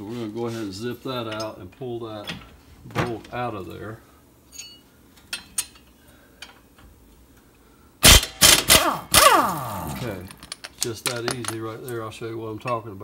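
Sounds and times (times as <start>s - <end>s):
impact wrench hammering: 8.0s - 11.2s.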